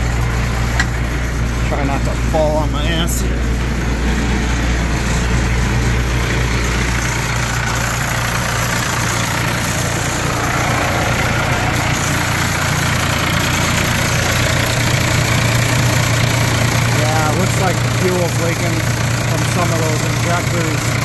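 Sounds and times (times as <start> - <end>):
tractor diesel engine idling: 0.0 - 21.0.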